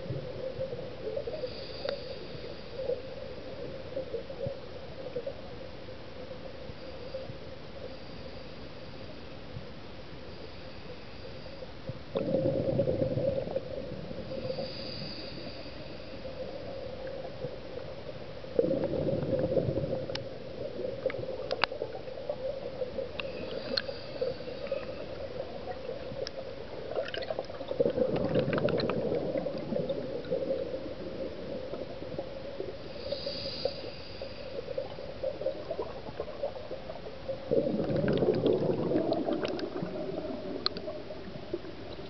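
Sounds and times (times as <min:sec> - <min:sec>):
underwater regulator bubbling: 0:12.2 - 0:14.8, 0:18.6 - 0:42.0.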